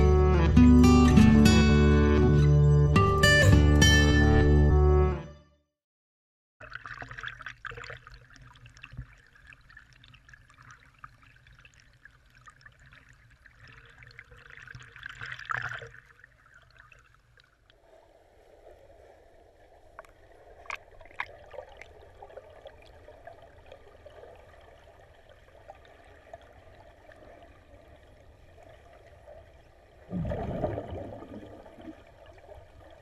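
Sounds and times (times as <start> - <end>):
water splashing from swimming strokes: 6.6 - 33.0
muffled underwater sound: 17.8 - 33.0.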